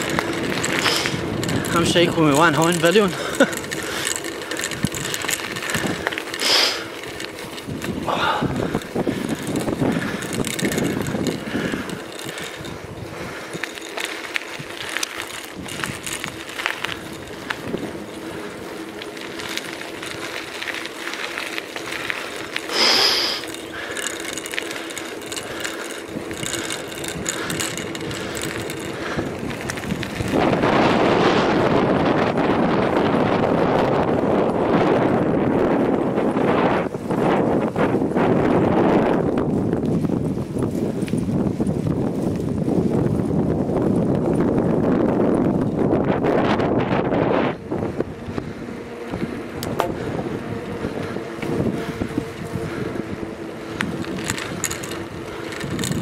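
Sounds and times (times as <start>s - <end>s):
freewheel ratchet ticking: 0.0s - 30.8s, 48.3s - 56.0s
bicycle parts rattling: 0.0s - 56.0s
bicycle tyres rolling on tarmac: 0.0s - 56.0s
wind buffeting microphone: 0.0s - 56.0s.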